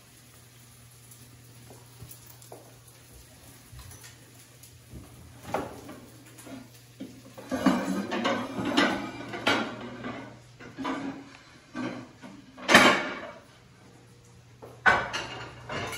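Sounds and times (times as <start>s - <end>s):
dishes clinking and knocking: 7.0s - 13.4s, 14.7s - 15.9s.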